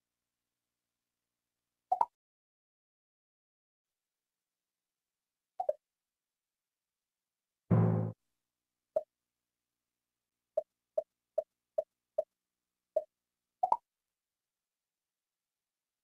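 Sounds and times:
low menu tone: 7.7s - 8.2s.

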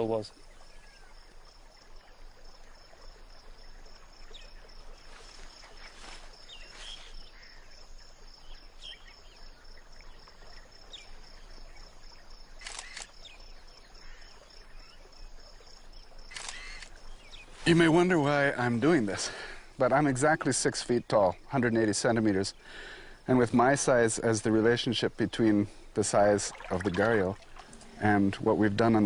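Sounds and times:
faint chirps: 0.0s - 19.8s
camera shutter clicks: 12.6s - 13.2s, 16.3s - 17.0s.

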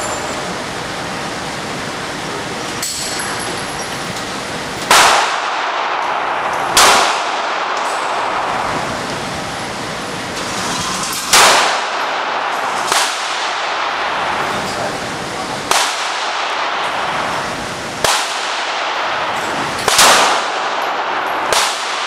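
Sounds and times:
handgun shots echoing indoors: 4.8s - 8.8s, 11.2s - 14.4s, 15.7s - 17.2s, 18.0s - 22.0s.

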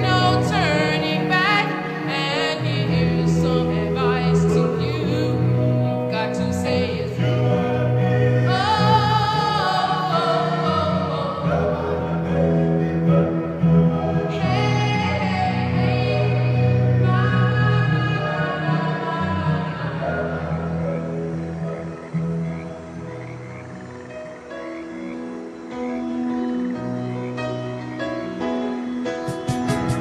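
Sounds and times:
person singing with vibrato: 0.0s - 22.3s
sustained chords: 0.0s - 30.0s.

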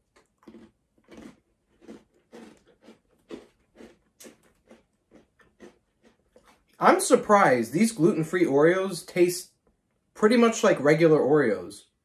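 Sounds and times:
person chewing: 0.0s - 6.8s.

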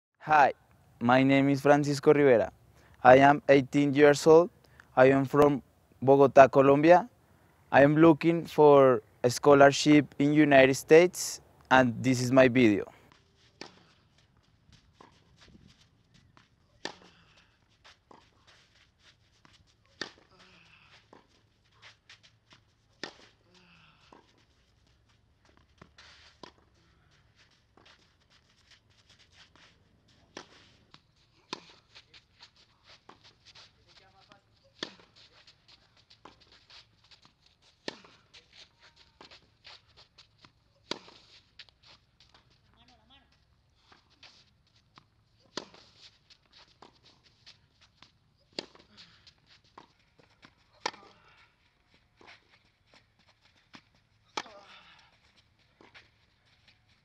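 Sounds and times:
shoe scuffs on clay court: 12.4s - 57.0s
tennis ball struck by racket: 16.8s - 17.1s, 20.0s - 20.3s, 23.0s - 23.3s, 30.3s - 30.7s, 34.7s - 35.2s, 37.8s - 38.2s, 40.8s - 41.3s, 45.5s - 45.9s, 48.5s - 48.9s, 49.8s - 51.2s, 54.3s - 54.7s.

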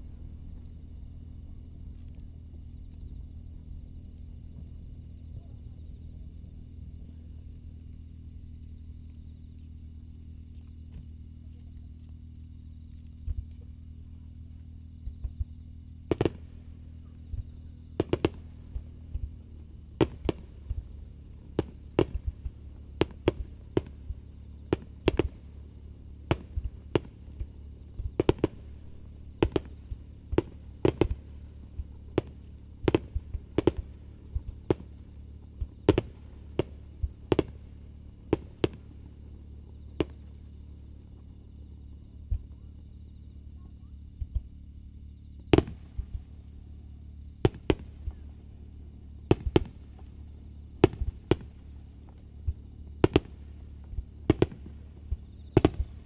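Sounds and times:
distant firework bangs: 15.0s - 19.4s, 20.0s - 25.5s, 26.2s - 35.0s, 35.6s - 39.1s, 45.5s - 46.3s, 47.4s - 48.3s, 49.3s - 50.1s, 50.8s - 56.0s.

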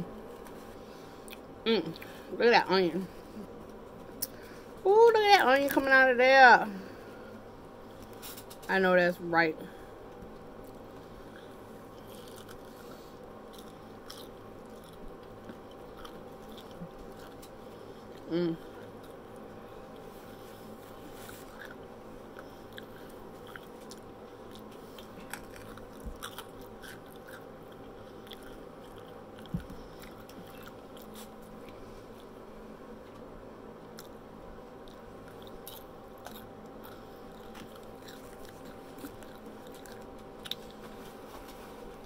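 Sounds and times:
chewing crunchy onion rings: 10.1s - 33.2s, 33.8s - 41.4s.

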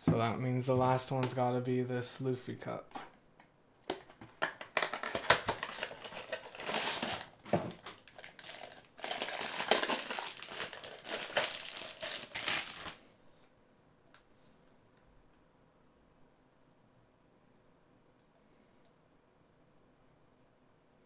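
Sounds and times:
packaging crinkling and rustling: 4.0s - 13.0s.

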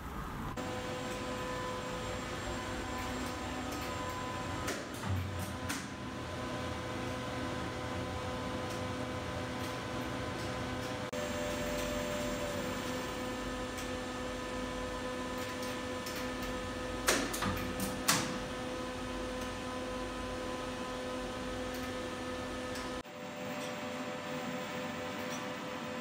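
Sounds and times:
elevator machinery hum: 0.0s - 26.0s.

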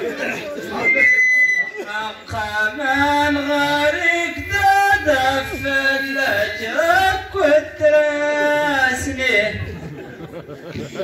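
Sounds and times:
man singing solo: 1.8s - 9.6s.

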